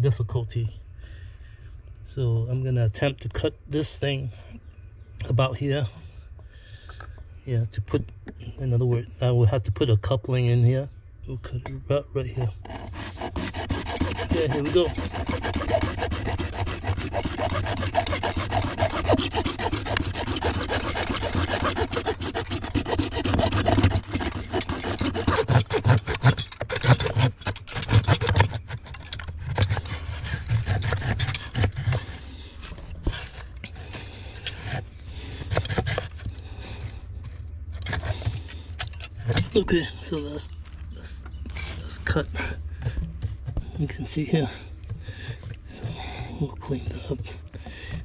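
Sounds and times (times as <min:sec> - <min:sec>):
hand saw cutting plastic pipe: 0:12.4 - 0:32.2, 0:33.0 - 0:36.2, 0:37.8 - 0:40.3.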